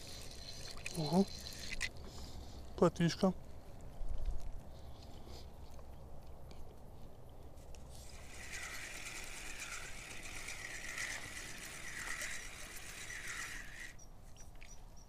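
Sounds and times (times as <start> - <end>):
fishing reel whirring and ticking: 0.0 - 2.0, 8.0 - 14.0.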